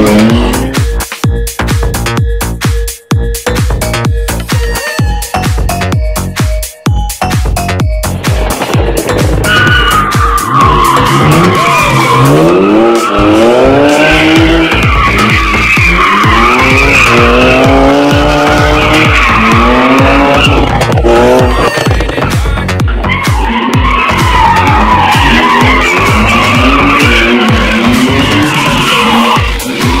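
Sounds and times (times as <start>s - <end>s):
car engine revving: 0.0s - 1.0s, 8.0s - 30.0s
music with steady beat: 0.0s - 30.0s
tyres squealing: 8.9s - 30.0s.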